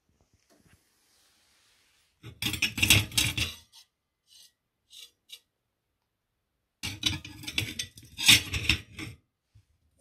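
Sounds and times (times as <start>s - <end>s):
metal plates clinking together: 2.3s - 3.7s, 6.8s - 9.2s.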